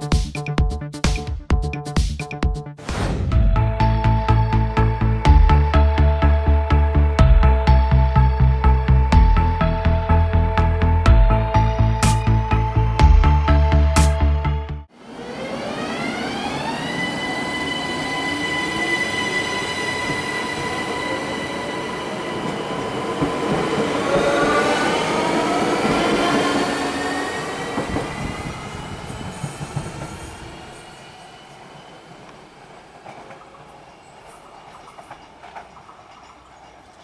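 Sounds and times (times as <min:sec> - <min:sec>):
electric train traction whine: 0:14.9 - 0:35.7.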